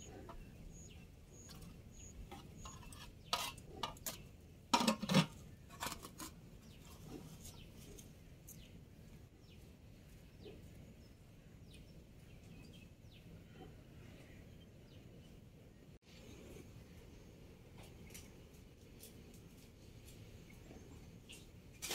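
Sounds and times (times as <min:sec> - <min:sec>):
birds chirping faintly: 0:00.0 - 0:04.6
metal pot and ladle clanking: 0:02.3 - 0:06.3.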